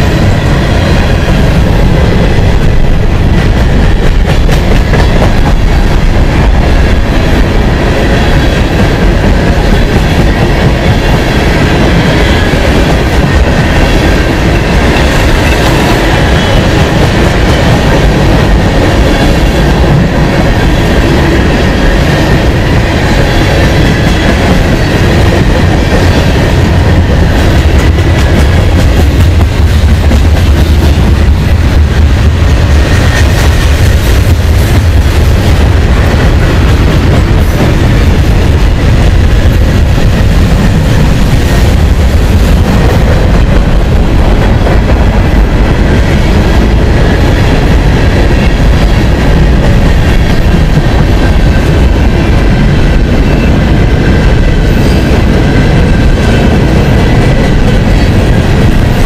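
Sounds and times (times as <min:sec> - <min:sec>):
freight train rumbling past: 0:00.0 - 0:59.0.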